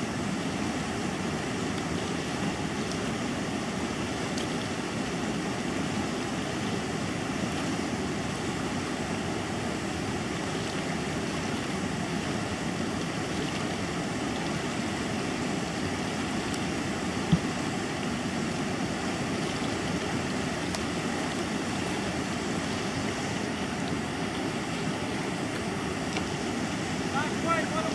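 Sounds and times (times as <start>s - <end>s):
rapids rushing over rocks: 0.0s - 27.9s.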